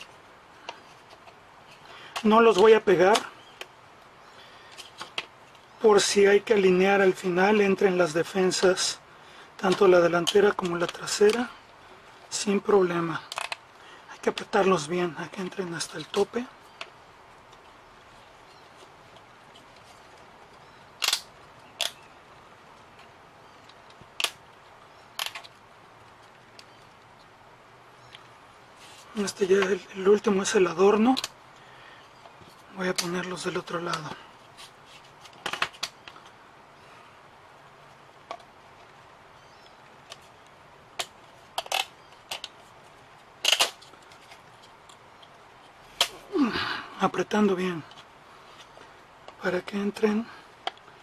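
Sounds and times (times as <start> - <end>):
wooden model parts clicking: 13.3 - 13.6, 21.0 - 22.0, 25.2 - 25.6, 41.0 - 42.6, 43.4 - 45.4
wooden pieces clicking into slots: 21.0 - 22.0, 43.4 - 44.4.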